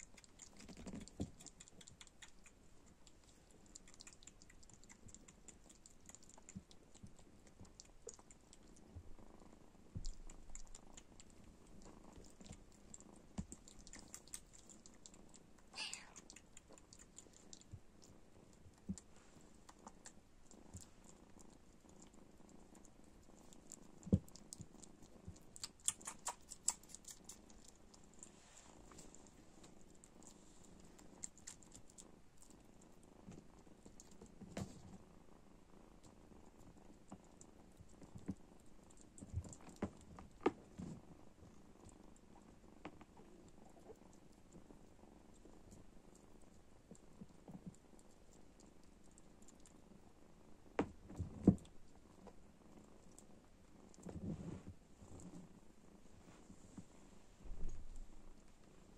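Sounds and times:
kitten suckling wet clicking: 0.0 - 8.8, 10.0 - 28.3, 28.9 - 32.6
kitten purring: 0.0 - 58.9.

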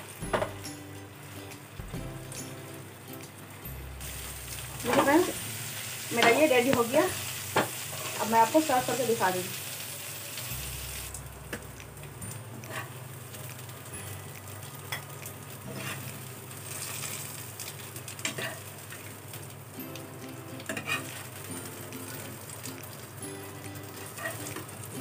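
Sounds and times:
chicken sizzling in oil: 0.0 - 25.0
spatula scraping a pan: 7.6 - 8.3, 15.7 - 17.3.

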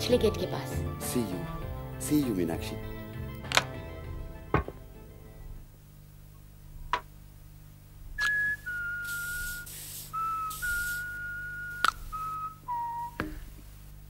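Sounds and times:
man whistling a tune: 8.2 - 13.4.

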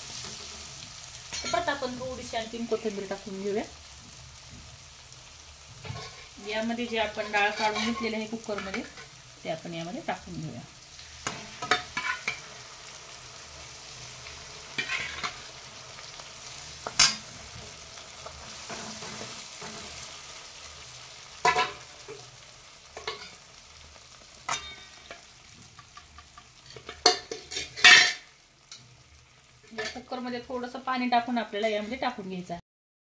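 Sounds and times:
steady sizzle: 0.0 - 32.6
ladle scraping metal pan: 7.1 - 9.1, 11.2 - 12.5, 14.8 - 15.5, 26.6 - 28.2.

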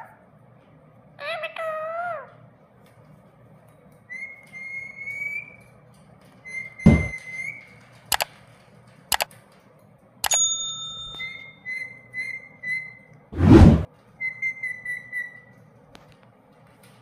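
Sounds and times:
heavy thunk: 6.9 - 7.1
sharp clicks: 6.9 - 7.1.

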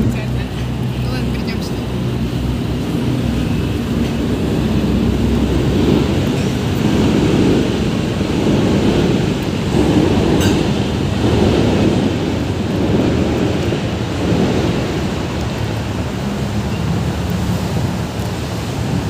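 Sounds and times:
ship engine rumble: 0.0 - 19.0
water wash: 0.0 - 19.0
wind buffeting microphone: 0.0 - 19.0.

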